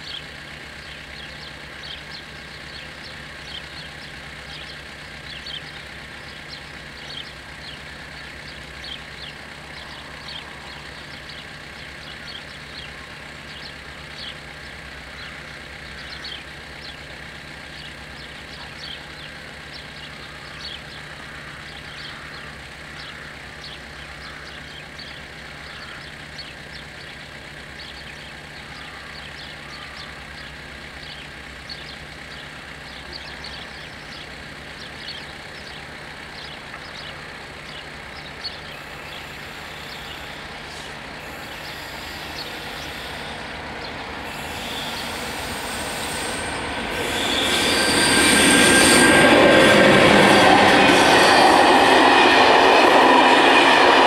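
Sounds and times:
level crossing warning bells: 22.5s - 54.0s.

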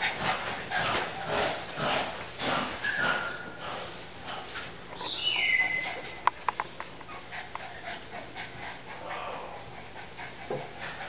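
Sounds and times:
puppy squeaking: 5.0s - 6.2s
puppy whining: 5.0s - 6.3s, 7.0s - 7.9s.

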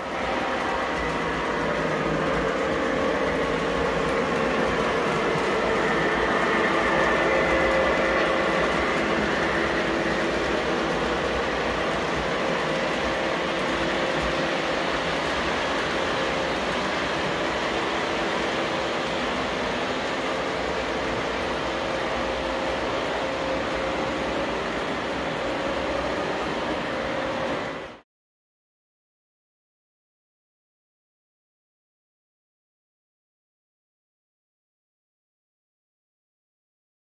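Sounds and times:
model train rolling on rails: 0.0s - 28.0s.

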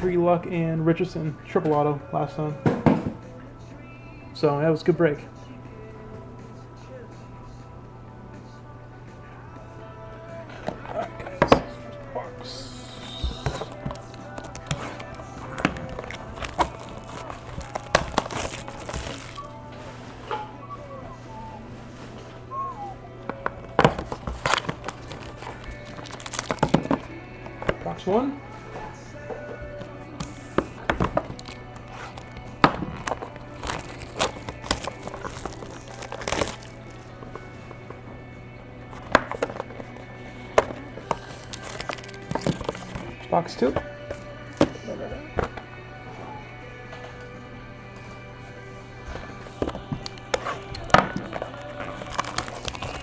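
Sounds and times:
plastic wrap tearing and crinkling: 13.6s - 19.5s, 23.8s - 27.1s, 31.2s - 37.0s, 41.1s - 43.0s, 50.4s - 53.0s.

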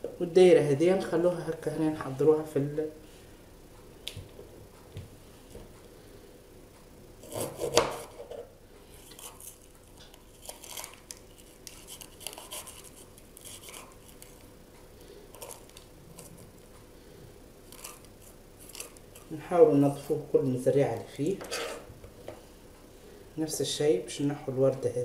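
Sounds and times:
knife scraping pepper seeds: 7.2s - 8.3s, 9.0s - 14.5s, 15.3s - 16.5s, 17.7s - 19.4s, 21.4s - 21.9s.

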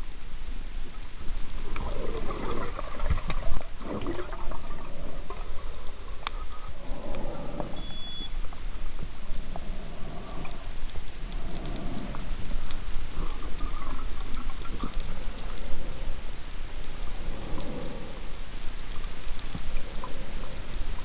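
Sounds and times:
clicks and crackle: 0.0s - 21.0s
scuba exhaust bubbles gurgling: 1.6s - 7.8s.

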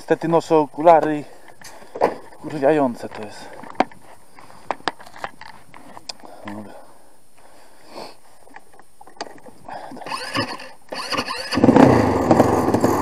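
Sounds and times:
quad bike engine cranking: 9.2s - 13.0s
quad bike engine running: 10.0s - 13.0s.

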